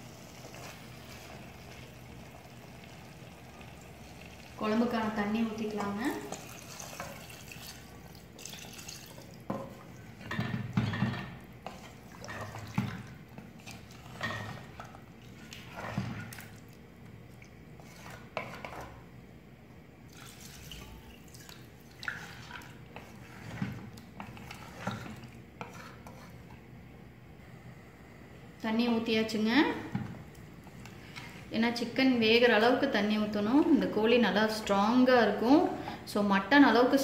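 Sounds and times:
water pouring and splashing: 0:00.3 - 0:18.3, 0:20.1 - 0:25.4.

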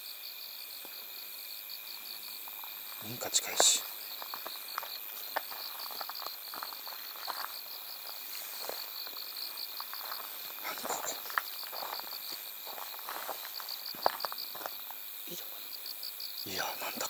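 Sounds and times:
insects chirping: 0:00.0 - 0:17.0
footsteps crunching: 0:02.1 - 0:15.6.

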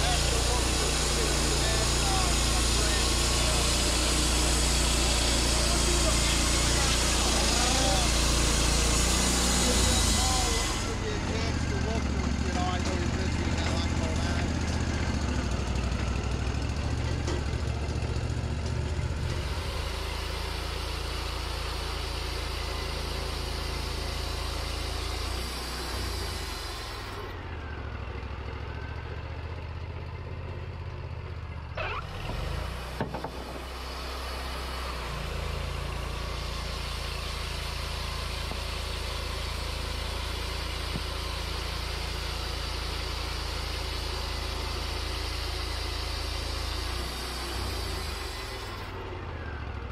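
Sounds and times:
band blade cutting log: 0:00.0 - 0:11.6, 0:23.4 - 0:27.3, 0:32.2 - 0:48.9
sawmill engine running: 0:00.0 - 0:49.9.

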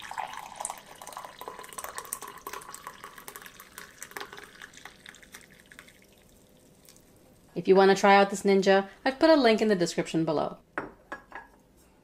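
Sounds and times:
coffee pouring into a mug: 0:00.0 - 0:07.2.

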